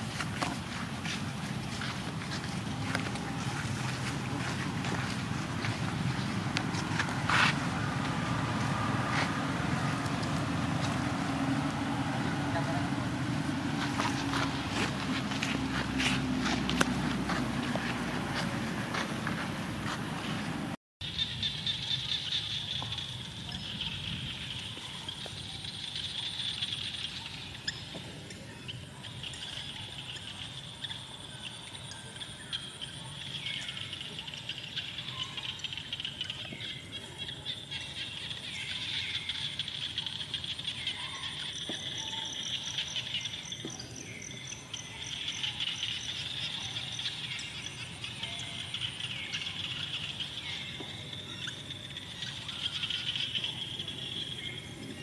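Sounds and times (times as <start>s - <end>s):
insects droning: 0.0s - 55.0s
bird chirps: 21.0s - 55.0s.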